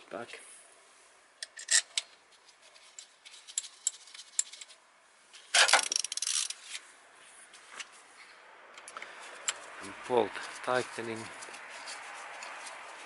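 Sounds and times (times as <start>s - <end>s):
ratchet and socket clattering: 5.6s - 6.6s.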